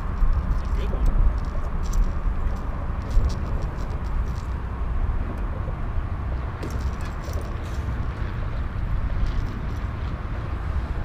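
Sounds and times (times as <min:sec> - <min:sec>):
wind rumbling on microphone: 0:00.0 - 0:11.0
light clicks and rattles of handling: 0:00.1 - 0:04.6, 0:06.6 - 0:08.4.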